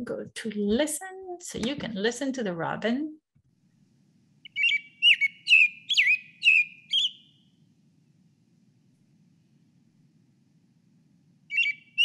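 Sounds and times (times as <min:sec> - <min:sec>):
robin singing: 0:04.4 - 0:07.4, 0:11.5 - 0:12.0.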